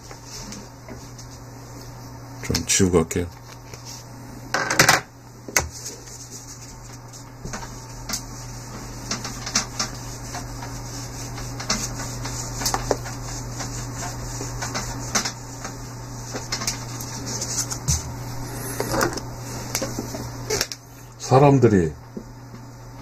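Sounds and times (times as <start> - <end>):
steady low hum: 0.0 - 23.0
eraser rubbing on whiteboard: 8.8 - 19.0.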